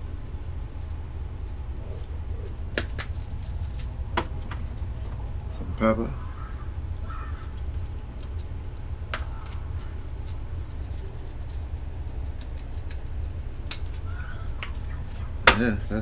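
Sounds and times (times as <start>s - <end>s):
steady low hum: 0.0s - 16.0s
pepper shaker clicks: 11.2s - 14.9s.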